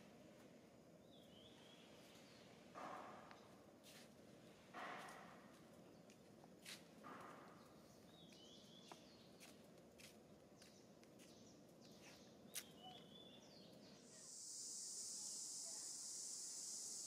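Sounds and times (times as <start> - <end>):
high-pitched insect drone: 14.0 - 17.0.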